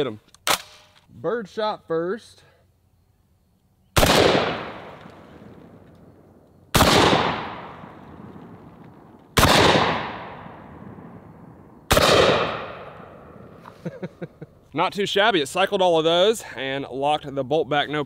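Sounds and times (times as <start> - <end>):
shotgun shots echoing: 4.0 - 5.8, 6.7 - 13.6.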